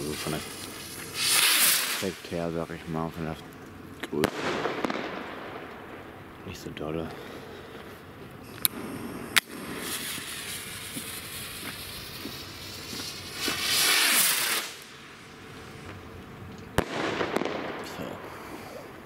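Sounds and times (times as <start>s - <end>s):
firework bang: 0.0s - 2.4s, 4.1s - 5.7s, 8.7s - 14.8s, 16.8s - 18.4s
rocket launch whoosh: 0.0s - 2.4s, 12.7s - 14.9s
fuse hissing: 0.0s - 3.0s
firework crackling: 0.0s - 19.0s.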